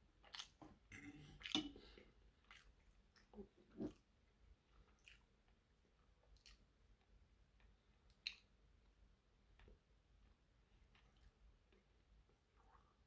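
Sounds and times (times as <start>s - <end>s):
chewing and biting food: 0.2s - 4.1s, 4.7s - 5.6s.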